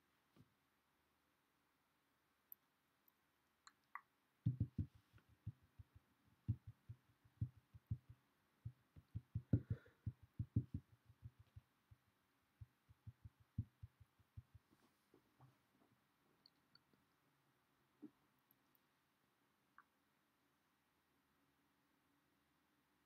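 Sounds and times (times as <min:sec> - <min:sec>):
muffled low taps: 0:04.4 - 0:14.8.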